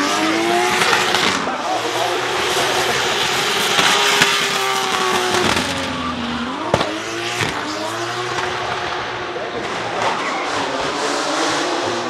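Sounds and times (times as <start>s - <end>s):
car engine at high revs: 0.0s - 12.0s
exhaust pop: 3.7s - 7.7s.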